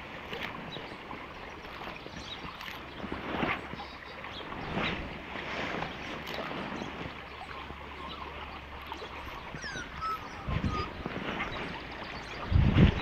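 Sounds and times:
stream rushing over riffles: 0.0s - 13.0s
wind noise on microphone: 2.2s - 7.2s, 9.2s - 13.0s.

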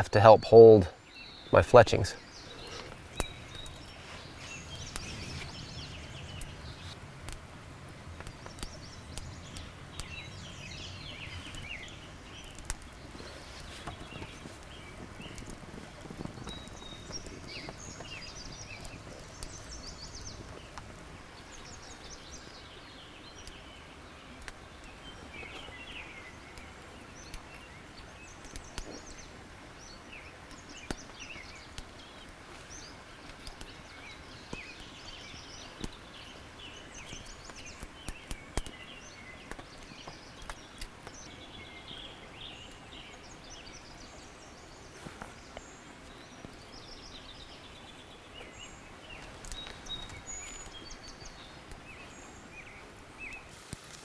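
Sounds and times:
faint outdoor background: 0.0s - 54.0s
birds chirping and singing: 0.3s - 7.0s, 8.2s - 53.5s
clicks and rustles of hands: 2.6s - 5.6s, 11.4s - 21.0s, 28.4s - 29.2s, 30.5s - 33.8s, 37.0s - 38.8s, 39.4s - 41.2s, 49.2s - 51.8s.

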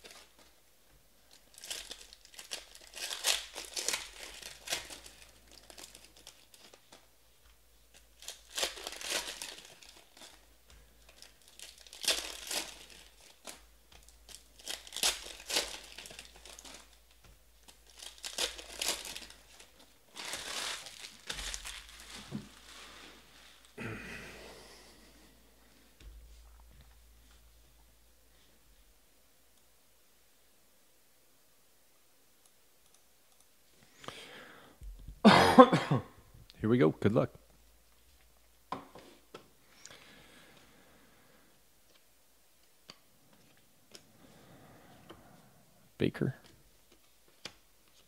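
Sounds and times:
wrappers torn and crinkled: 1.3s - 7.2s, 7.8s - 23.8s.

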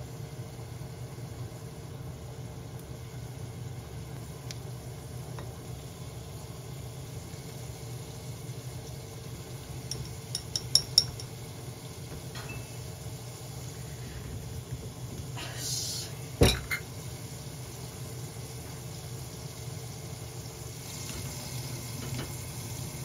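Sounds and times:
chopsticks clinking on ceramic dish: 9.9s - 11.4s.

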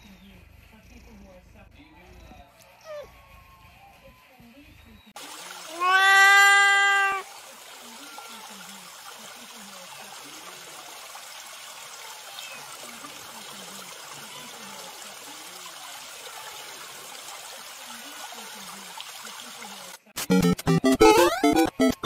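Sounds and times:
stream running over rocks: 5.2s - 20.0s.

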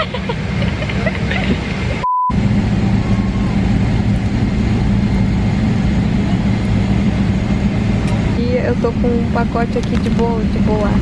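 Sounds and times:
airliner cabin drone: 0.0s - 11.0s
short steady beep: 2.0s - 2.4s.

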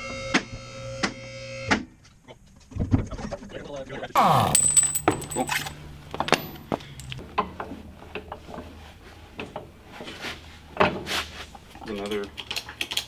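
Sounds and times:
tools clinking and knocking: 4.4s - 7.2s.

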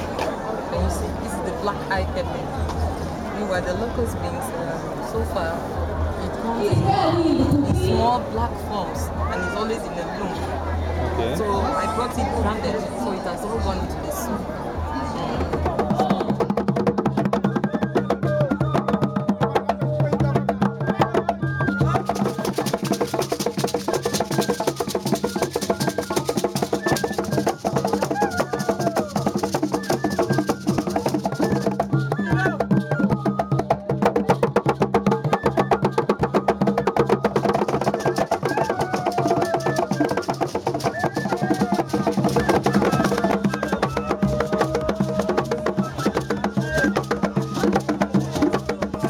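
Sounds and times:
voices: 0.0s - 34.2s, 36.7s - 49.0s
hand drum fast rhythm: 5.2s - 10.6s, 11.4s - 49.0s.

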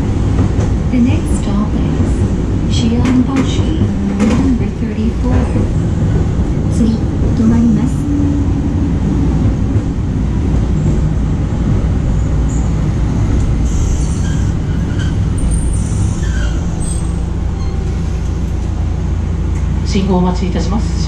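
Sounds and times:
streetcar rumbling on rails: 0.0s - 21.0s.

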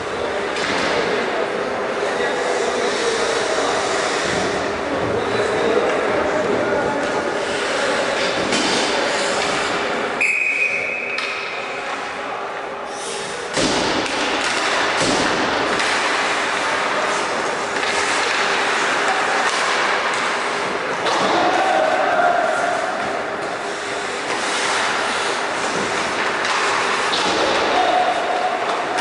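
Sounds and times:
voices of players and crowd: 0.0s - 29.0s
referee's whistle: 10.2s - 11.2s
skates scraping on ice: 14.1s - 29.0s.

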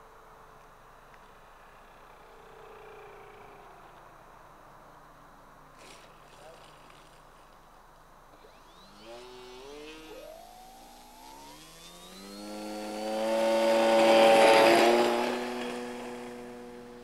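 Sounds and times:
model plane motor whine: 8.3s - 17.0s.

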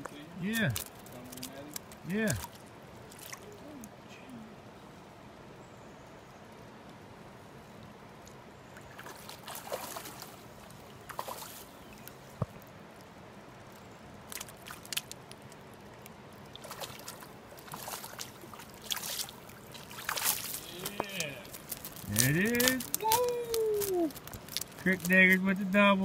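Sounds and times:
fish splashing in water: 0.6s - 3.6s, 8.8s - 11.8s, 14.3s - 15.5s, 16.4s - 24.9s.

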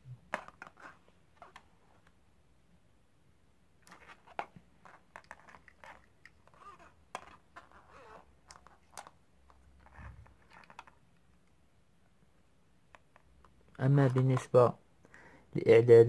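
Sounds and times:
handling wires and plastic parts: 12.9s - 14.7s.

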